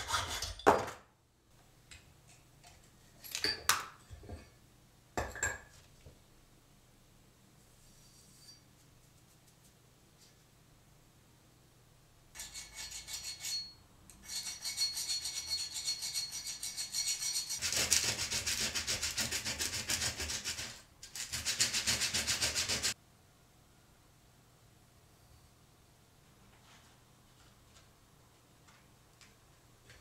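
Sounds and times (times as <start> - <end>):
thin high ring: 7.8 - 8.9, 12.4 - 17.6
axe blade on sharpening stone: 12.4 - 17.6.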